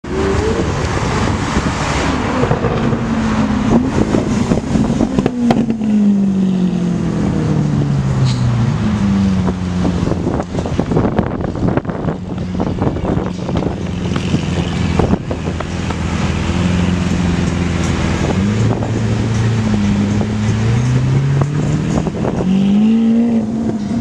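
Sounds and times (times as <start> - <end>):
sports car accelerating past: 18.0 - 24.0.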